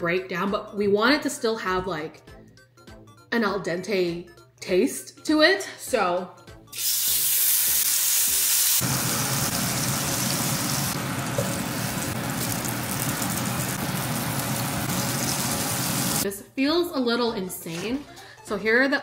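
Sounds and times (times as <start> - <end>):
onion slices sizzling in a pan: 6.8 - 16.2.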